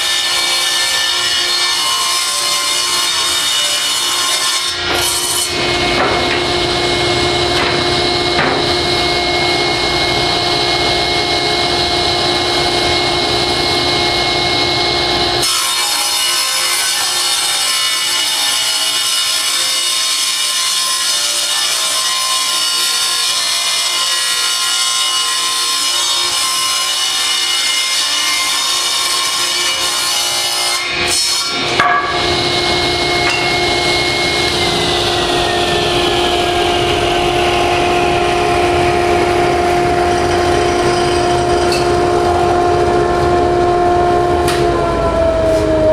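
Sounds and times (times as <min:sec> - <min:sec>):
table saw cutting wood: 0:00.0 - 0:45.9
dust collector running: 0:04.7 - 0:16.0, 0:31.5 - 0:45.9
saw winding down: 0:31.5 - 0:45.9.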